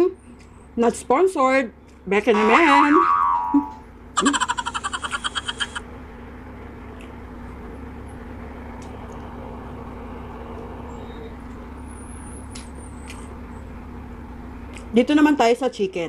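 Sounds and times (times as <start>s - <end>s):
pulsing cartoon sound effect: 2.3s - 5.8s.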